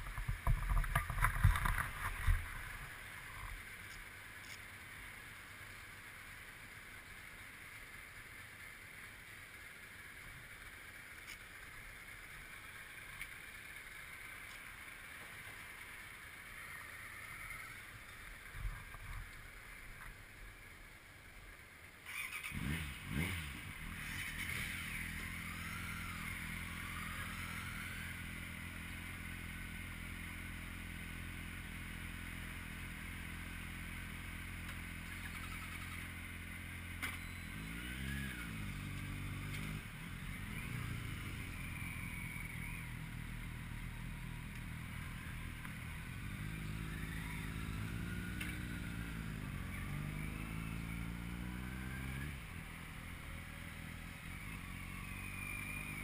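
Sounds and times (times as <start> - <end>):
vehicle engine revving: 22.1 - 32.2, 33.6 - 56.0.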